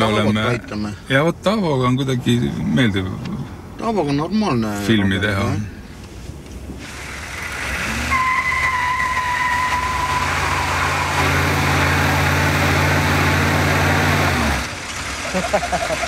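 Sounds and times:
van engine revving: 6.8 - 16.0
tyre squealing: 7.9 - 14.7.

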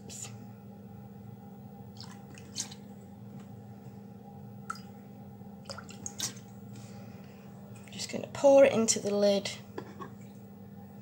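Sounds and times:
liquid drips and splashes: 1.9 - 2.8, 4.6 - 5.0, 5.6 - 6.6.

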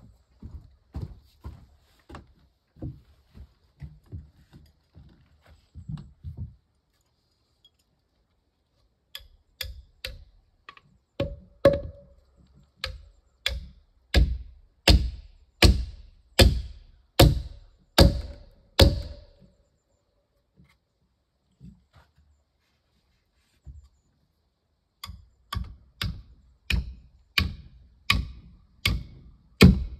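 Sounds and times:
hammer driving nail into wood: 12.8 - 19.2, 25.0 - 29.9.

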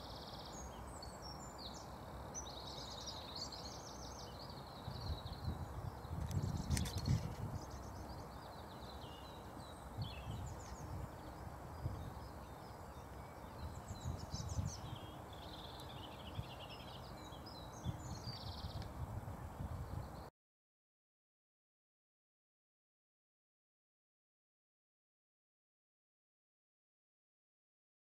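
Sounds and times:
songbirds chirping and singing: 0.0 - 20.3
low gusty rumble: 4.8 - 8.2, 17.7 - 20.2.

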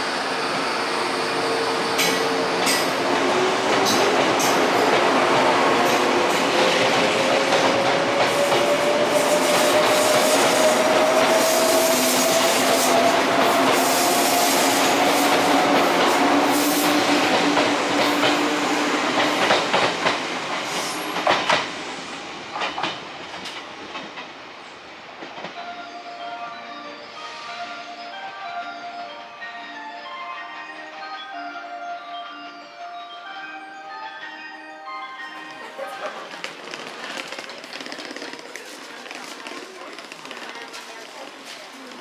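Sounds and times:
train wheel rumble: 1.3 - 25.7, 35.9 - 42.0
station melody chime: 25.6 - 36.2.

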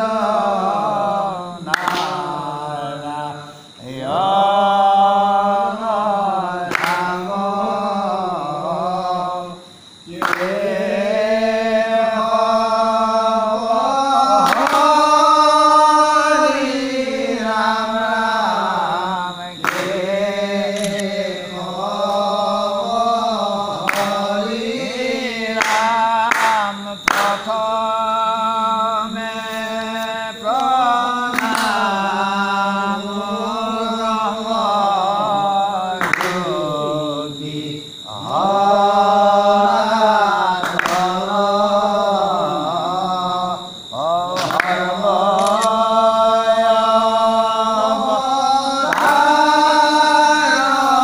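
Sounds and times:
devotional chanting: 0.0 - 51.0
sharp clicks: 20.7 - 21.1, 45.4 - 45.8.

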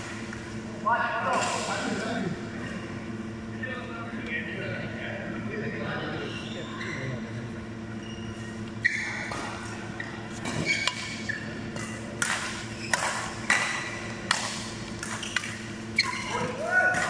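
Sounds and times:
shoe squeaks: 6.2 - 7.3, 8.0 - 11.7, 12.7 - 13.1, 16.0 - 16.6
rackets hitting shuttlecock: 10.4 - 17.0.

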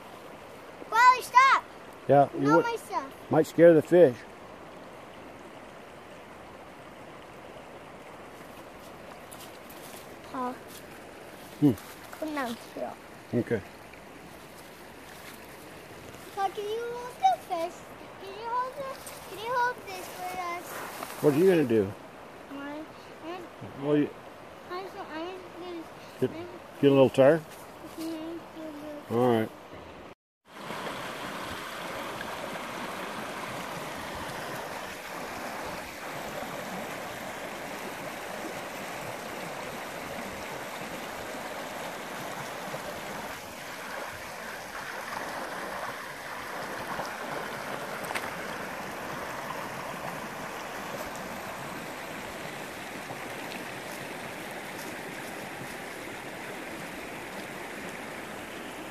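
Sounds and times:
creek water rushing over stones: 0.0 - 58.9.

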